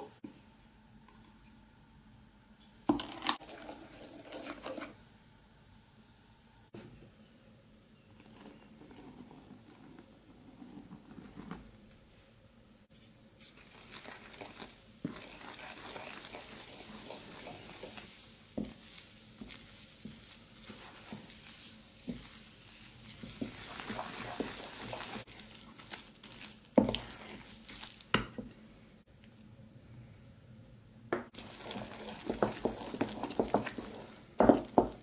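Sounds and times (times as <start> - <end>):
spoon stirring batter: 8.1 - 11.7, 13.0 - 28.5, 31.3 - 35.0.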